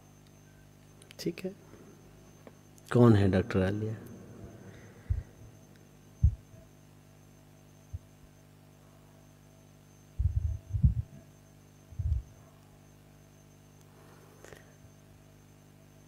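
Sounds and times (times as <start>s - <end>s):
low electrical hum: 0.0s - 16.0s
dull low thumps: 4.9s - 5.6s, 6.2s - 6.6s, 10.2s - 11.2s, 11.9s - 12.3s.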